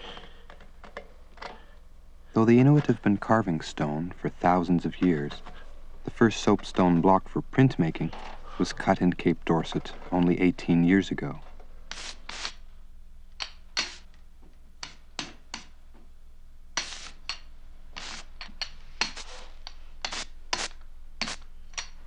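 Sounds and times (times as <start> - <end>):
faint low hum: 0.0 - 22.0
ink roller scratchy strokes: 19.0 - 21.4.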